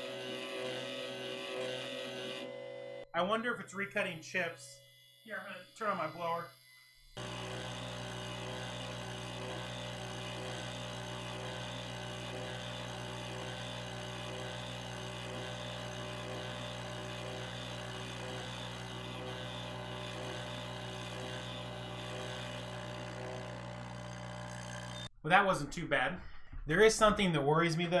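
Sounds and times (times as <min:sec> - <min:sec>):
milling spindle hum and whine: 0:03.9 - 0:25.1.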